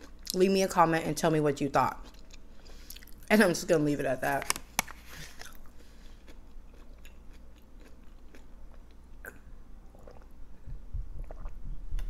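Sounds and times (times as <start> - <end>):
sipping and swallowing water: 9.2 - 12.0.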